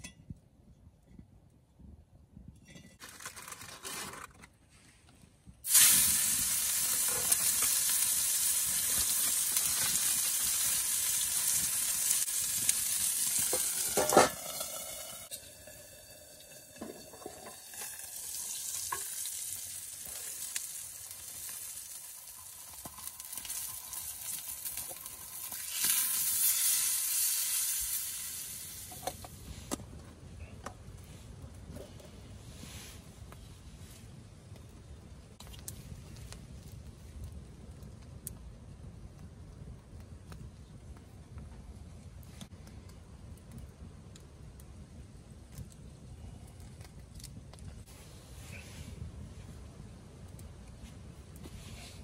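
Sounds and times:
food sizzling in a pan: 5.7 - 29.4
metal clank: 13.5 - 15.3.

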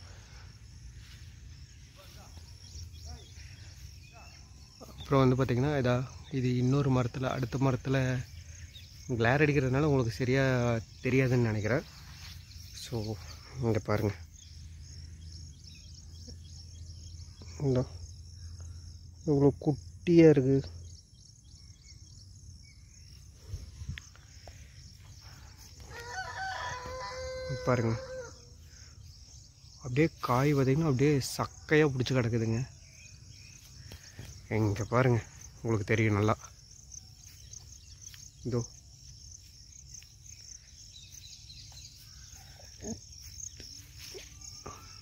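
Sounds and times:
high insect drone: 0.0 - 45.0
rooster crowing: 25.8 - 28.6.

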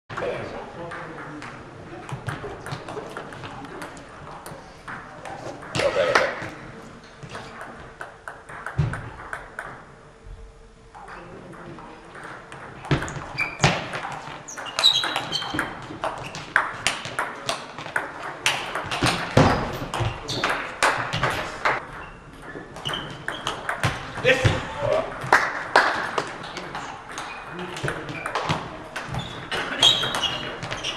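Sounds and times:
table tennis balls clicking: 0.2 - 6.5, 7.2 - 10.0, 10.9 - 24.4, 25.0 - 30.9.

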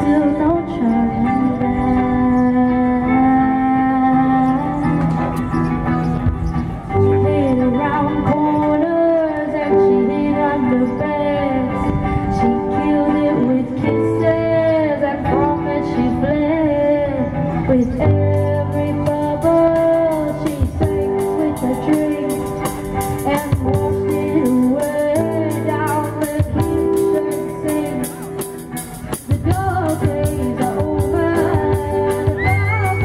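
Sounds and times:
woman singing: 0.0 - 5.1, 7.1 - 33.0
electric guitars: 0.0 - 33.0
drum kit beat: 19.1 - 33.0.

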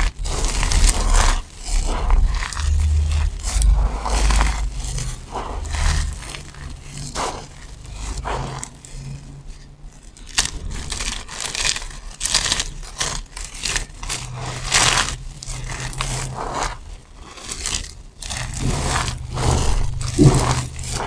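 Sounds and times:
crumbly soap breaking: 0.0 - 21.0
soap shavings crunching: 0.0 - 21.0.

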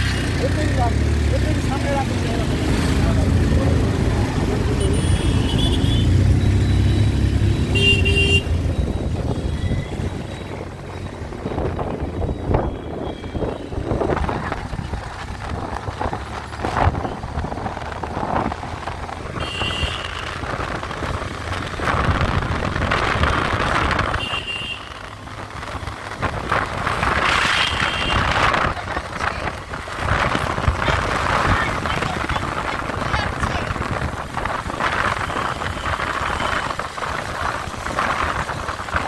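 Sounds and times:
engines and tyres rumbling: 0.0 - 39.0
horn honks: 4.8 - 8.6, 19.4 - 20.3, 24.1 - 25.1, 27.4 - 28.4
wind buffeting microphone: 8.6 - 19.4, 20.2 - 24.3.

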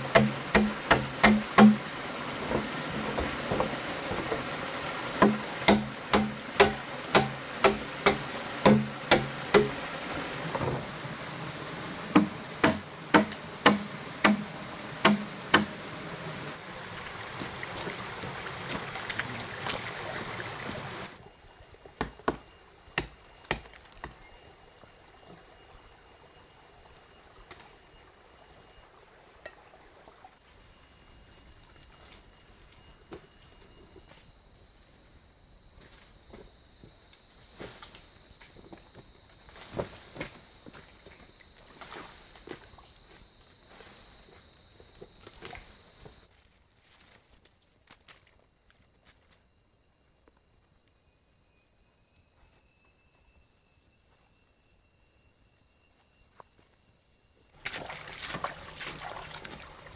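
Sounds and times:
blade chopping bamboo: 0.0 - 1.9, 5.2 - 9.8, 12.1 - 15.8
stream rushing: 0.0 - 21.2, 57.6 - 59.9.

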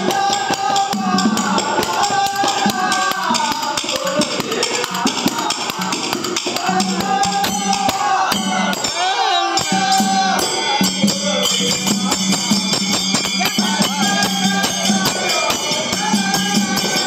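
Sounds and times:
clicking hand percussion: 0.0 - 17.0
man singing: 0.0 - 17.0
barrel drum: 9.6 - 17.0.

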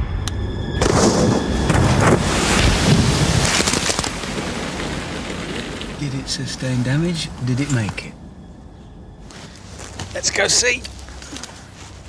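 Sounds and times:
water rushing and splashing: 1.7 - 7.6.

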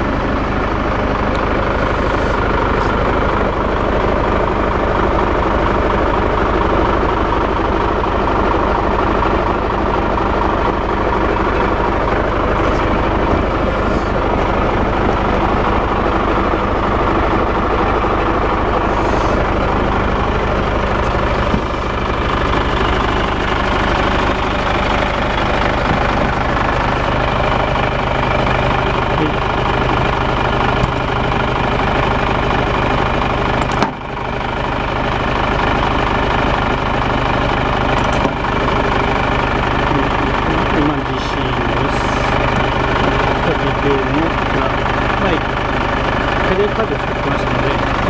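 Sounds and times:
truck diesel engine idling: 0.0 - 48.0.

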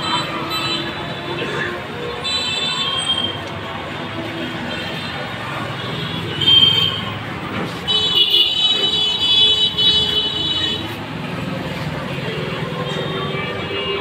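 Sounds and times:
street traffic: 0.0 - 14.0
high steady vehicle horn: 7.8 - 11.0, 12.8 - 14.0.

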